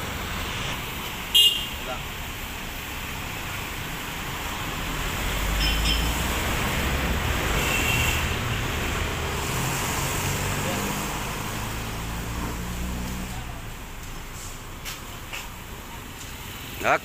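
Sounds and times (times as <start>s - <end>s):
passing cars and trucks: 0.0s - 17.0s.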